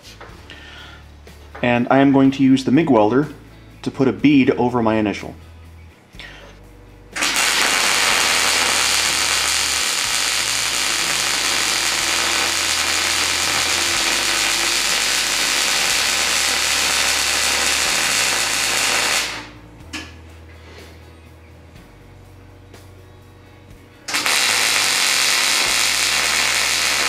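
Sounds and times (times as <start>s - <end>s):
welder arc crackling hiss: 7.2s - 19.6s, 24.1s - 27.0s.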